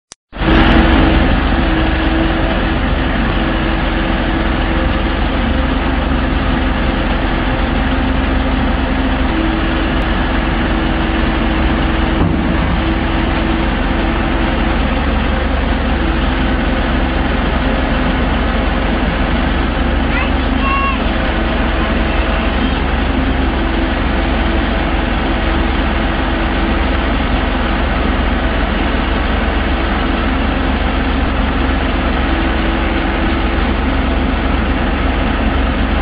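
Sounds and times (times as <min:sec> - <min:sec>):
excavator diesel engine idling: 0:00.4 - 0:36.0.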